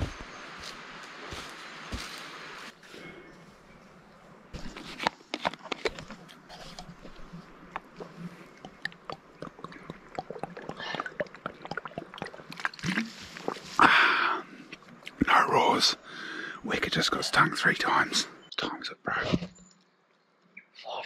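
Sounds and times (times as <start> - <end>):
liquid sloshing in bottle: 5.4 - 13.8
clicking gulps: 5.8 - 15.3
person breathing out: 13.8 - 14.6.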